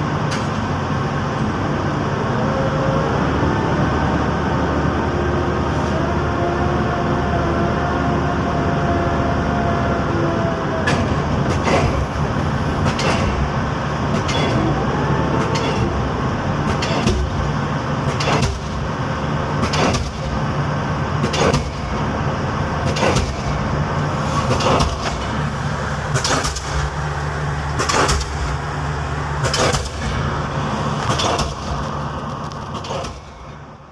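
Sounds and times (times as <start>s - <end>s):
engine drone: 0.0s - 33.9s
pile hammer striking: 12.8s - 14.6s, 16.7s - 17.5s, 18.1s - 18.9s, 19.6s - 20.4s, 21.2s - 22.0s, 22.8s - 23.7s, 24.4s - 25.4s, 26.1s - 27.0s, 27.8s - 28.6s, 29.4s - 30.2s, 31.0s - 31.9s.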